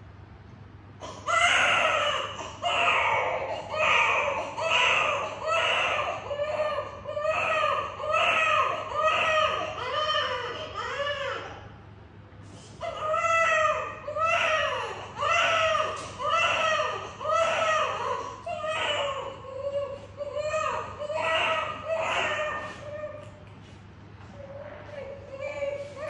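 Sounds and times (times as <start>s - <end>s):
newborn baby crying: 1.0s - 11.6s, 12.8s - 23.4s, 24.8s - 26.0s.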